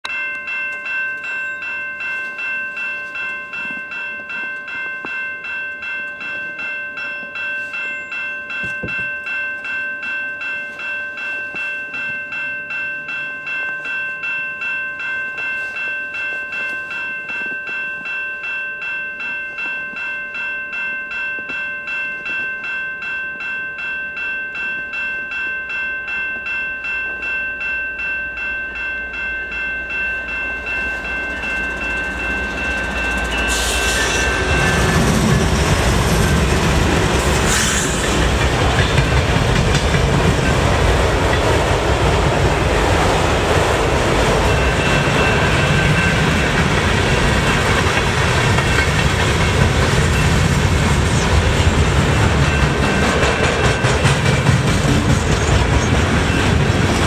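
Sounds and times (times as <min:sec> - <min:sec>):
railroad crossing bell ringing: 0:00.0 - 0:57.0
low rumble of train: 0:26.1 - 0:57.0.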